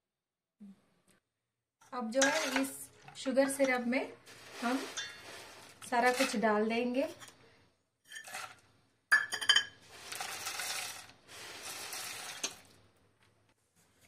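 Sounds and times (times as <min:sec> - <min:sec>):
fried snacks pattering into bowl: 0:10.0 - 0:12.8.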